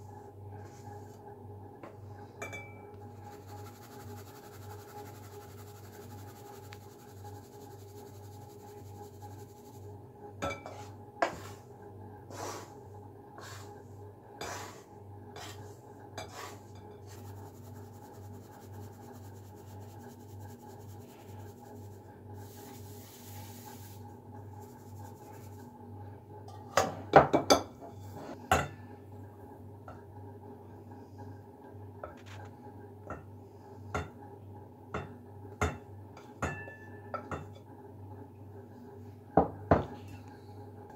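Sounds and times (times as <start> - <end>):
steady low hum: 0.0 - 26.6
wooden spatula scraping a pan: 14.4 - 24.1.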